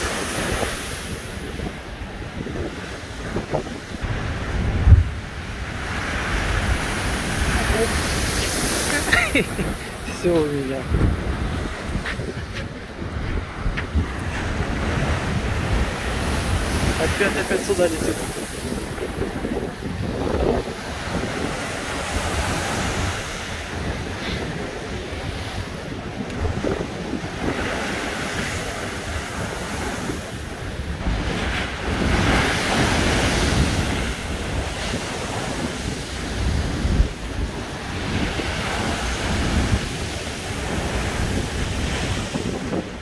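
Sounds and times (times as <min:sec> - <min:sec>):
storm waves crashing on sea wall: 0:00.0 - 0:43.0
wind buffeting microphone: 0:00.0 - 0:43.0.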